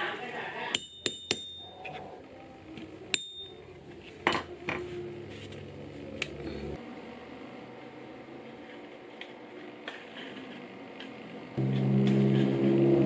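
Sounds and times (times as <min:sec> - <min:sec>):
mallet striking metal chisel: 0:00.7 - 0:01.6, 0:03.1 - 0:03.5.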